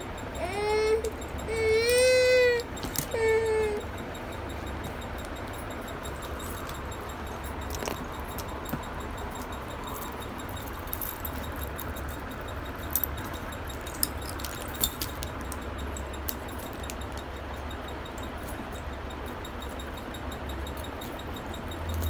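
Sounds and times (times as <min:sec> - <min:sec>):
steady low hum: 0:00.0 - 0:22.0
small metal pieces clinking: 0:06.2 - 0:17.2.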